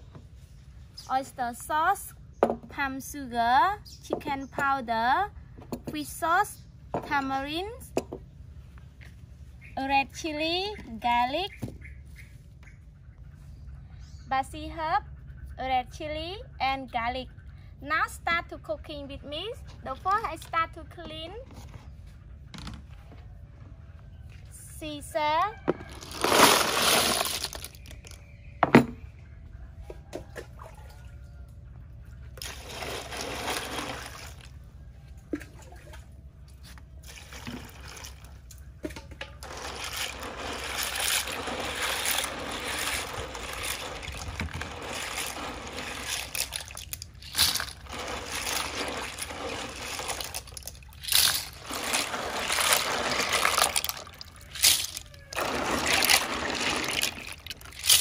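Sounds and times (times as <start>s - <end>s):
water sloshing and trickling: 25.6s - 28.6s, 29.6s - 58.0s
clams tipped into basin: 25.8s - 28.2s, 39.4s - 58.0s.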